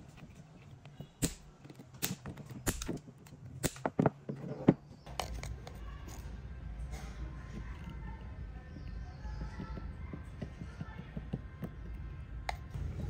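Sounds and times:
cutters snipping metal staples: 0:01.2 - 0:04.0.

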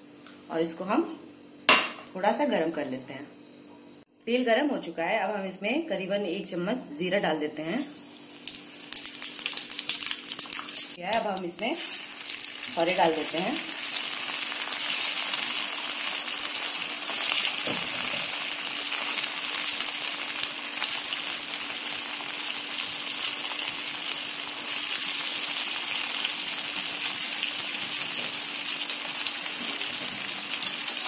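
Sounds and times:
food sizzling in hot oil: 0:07.8 - 0:31.0.

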